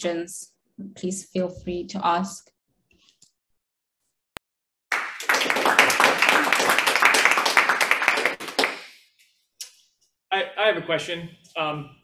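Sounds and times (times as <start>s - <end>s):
audience applauding: 4.9s - 9.0s.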